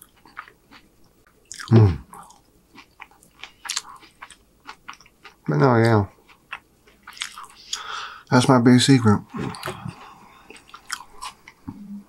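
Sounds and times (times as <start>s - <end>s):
close chewing with mouth smacks: 0.0s - 5.5s, 6.2s - 7.9s, 9.3s - 11.7s
person humming: 1.7s - 2.1s.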